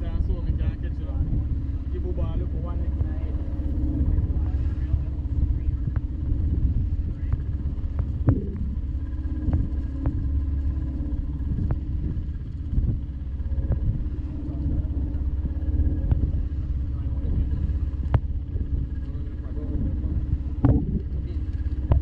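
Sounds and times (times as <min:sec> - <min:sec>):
boat motor rumble: 0:00.0 - 0:22.0.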